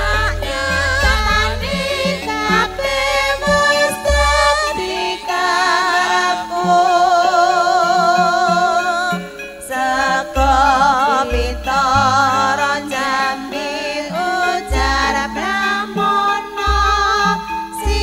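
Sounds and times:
band playing: 0.0 - 18.0
women singing with vibrato: 0.0 - 18.0.

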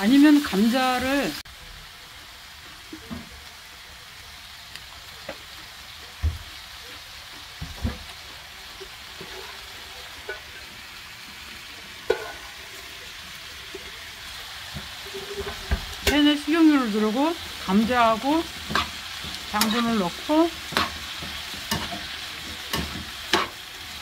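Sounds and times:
potatoes sizzling in oil: 0.0 - 24.0
utensils knocking against pan: 12.1 - 12.4, 18.3 - 23.6.

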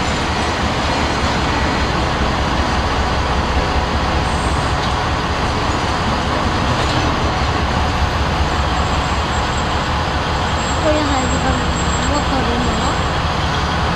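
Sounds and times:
diesel train engine drone: 0.0 - 13.9
train wheels on rails: 0.0 - 13.9.

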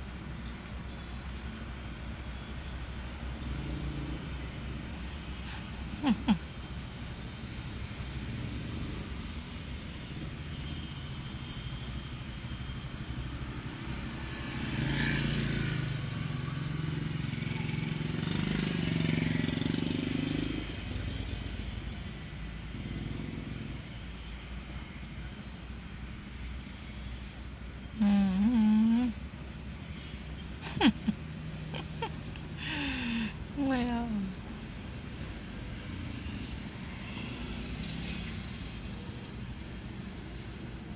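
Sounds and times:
road traffic rumble: 0.0 - 40.9
vehicle passing: 13.4 - 21.6, 29.9 - 40.9.

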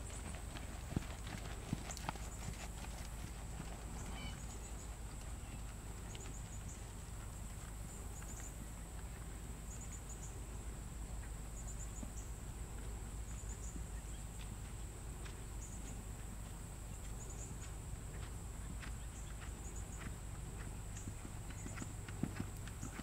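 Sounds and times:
horse hoofbeats on sand: 0.0 - 8.3, 14.4 - 23.0.

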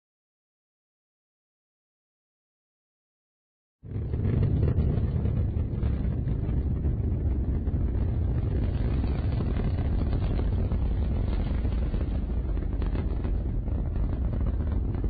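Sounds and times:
rocket engines rumbling: 3.9 - 15.0.

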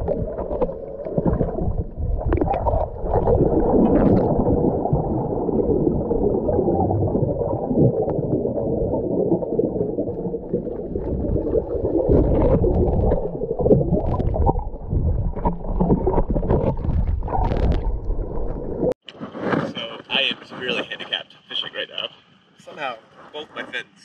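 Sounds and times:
underwater rush of water: 0.0 - 19.0.

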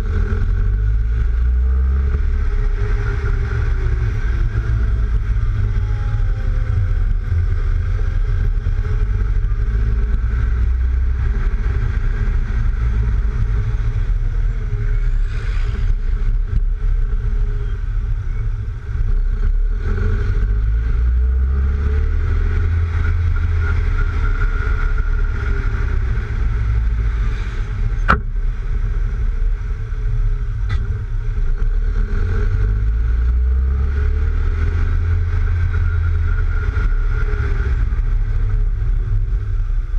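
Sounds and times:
car engine note: 0.0 - 39.9
heavy wind rumble: 0.0 - 39.9.

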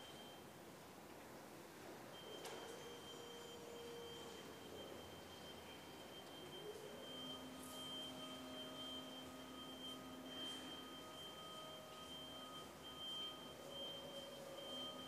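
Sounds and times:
high steady tone: 3.0 - 15.0.

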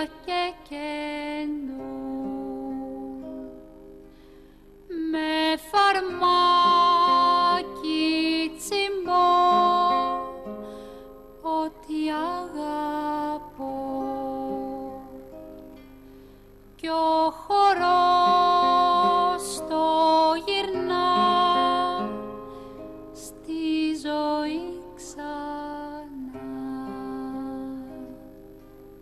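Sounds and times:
person singing folk song: 0.0 - 4.3, 4.9 - 29.0
plucked strings: 17.1 - 29.0.

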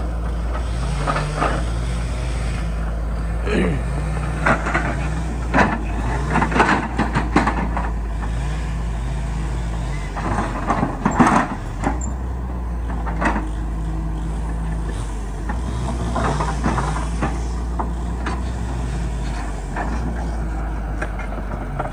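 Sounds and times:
diesel engine running: 0.0 - 21.9
metal knocks and clanks: 4.2 - 8.4, 10.1 - 13.6.

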